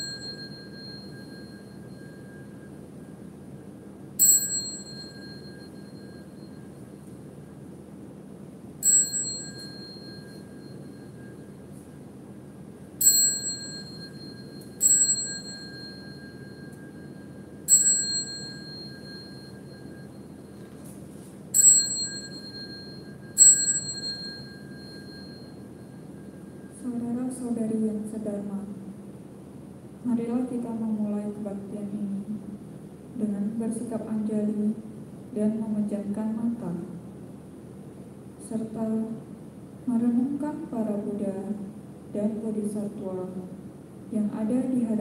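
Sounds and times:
small bell ringing: 0.0s - 3.2s, 4.2s - 7.1s, 8.8s - 11.9s, 13.0s - 20.9s, 21.5s - 26.9s
faint steady hum: 0.0s - 45.0s.

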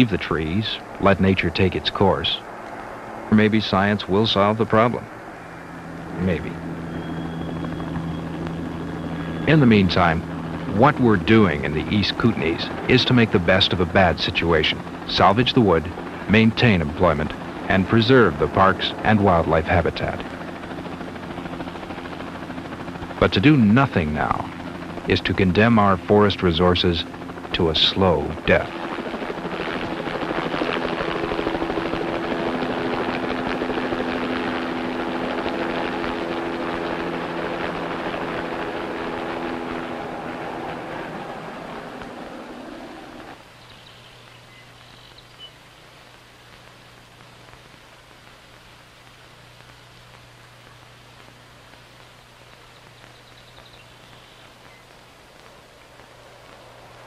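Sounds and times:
helicopter rotor chop: 0.0s - 43.4s, 55.4s - 57.0s
helicopter engine hum: 0.0s - 45.5s, 49.7s - 57.0s
steady hiss: 0.0s - 57.0s.

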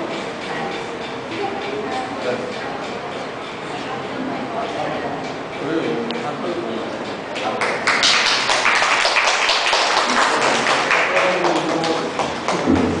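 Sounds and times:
murmur of voices: 0.0s - 13.0s
people clapping: 7.3s - 13.0s.

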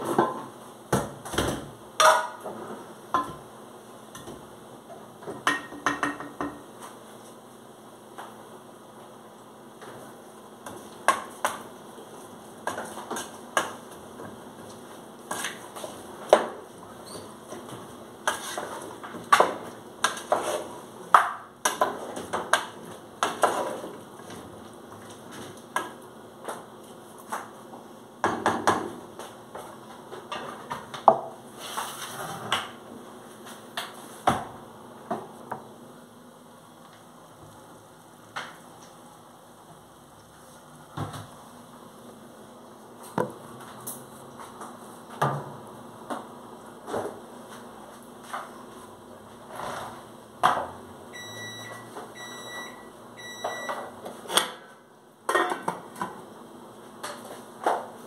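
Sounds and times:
wooden spoon stirring in metal pot: 17.4s - 20.8s.

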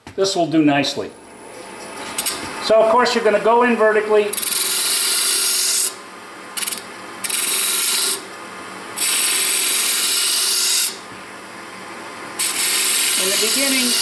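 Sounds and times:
lathe running: 1.2s - 6.0s, 9.0s - 14.0s
gouge shaving wood on lathe: 4.3s - 5.9s, 9.0s - 11.0s, 12.4s - 14.0s.

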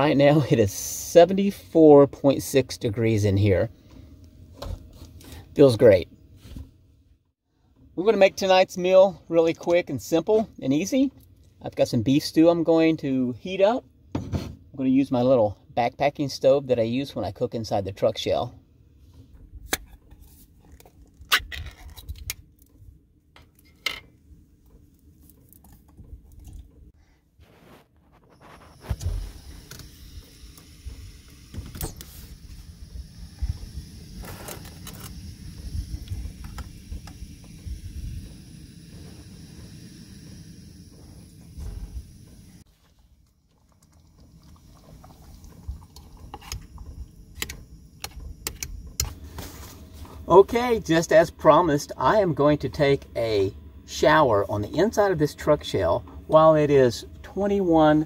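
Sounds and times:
low rumble: 32.3s - 42.7s.

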